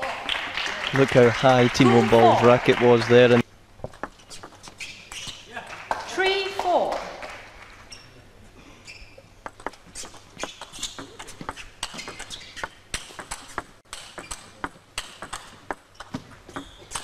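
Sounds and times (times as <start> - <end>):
shoes squeaking on floor: 3.8 - 5.5, 7.8 - 17.0.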